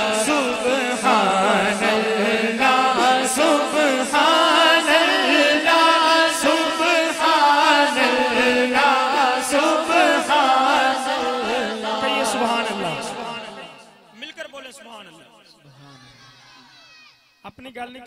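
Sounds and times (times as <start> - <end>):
man singing unaccompanied: 0.0 - 13.9.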